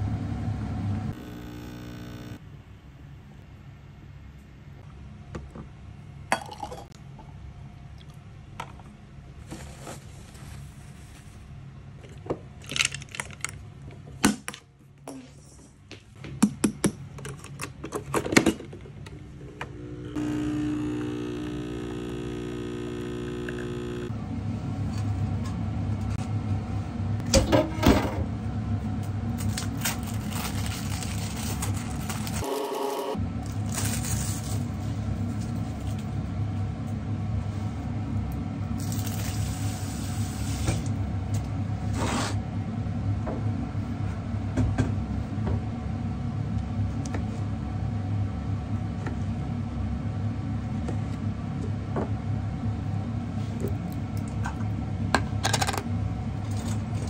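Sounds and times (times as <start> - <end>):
coffee machine humming: 0.0 - 2.4, 19.3 - 41.8
plastic wrapper crinkling: 29.4 - 32.5.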